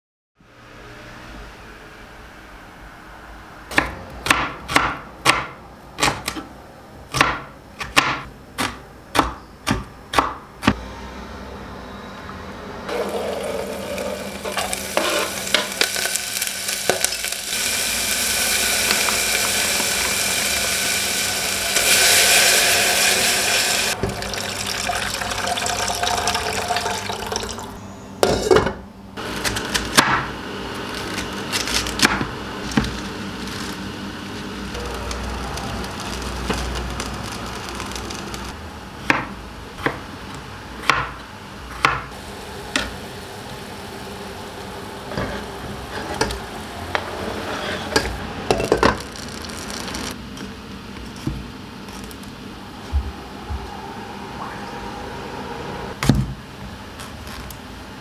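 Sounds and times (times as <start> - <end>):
tap water running: 12.9 - 27.8.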